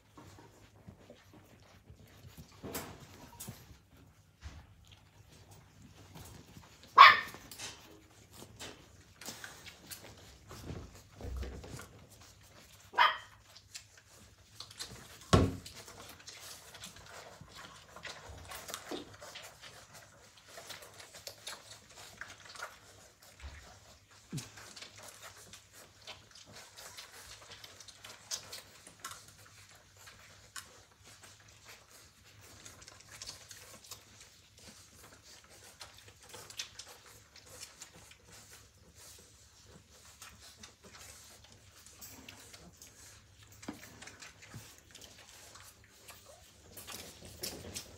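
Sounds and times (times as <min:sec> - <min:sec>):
puppies suckling with wet clicks: 0:00.0 - 0:47.9.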